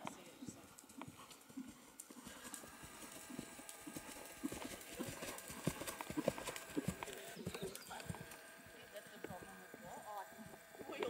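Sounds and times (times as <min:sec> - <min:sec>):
horse hoofbeats on sand: 0:00.9 - 0:08.3.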